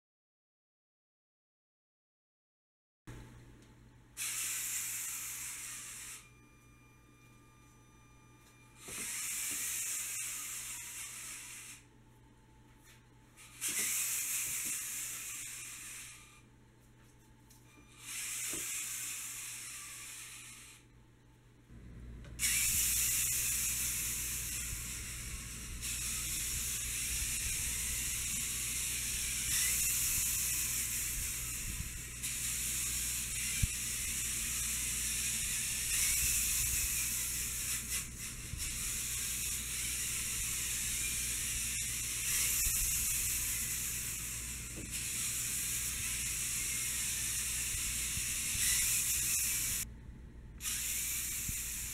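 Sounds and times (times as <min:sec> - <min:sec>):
robot motors hissing: 0:04.2 - 0:06.3, 0:08.8 - 0:11.9, 0:13.4 - 0:16.4, 0:17.9 - 0:20.8, 0:22.4 - 0:49.8, 0:50.6 - 0:51.9.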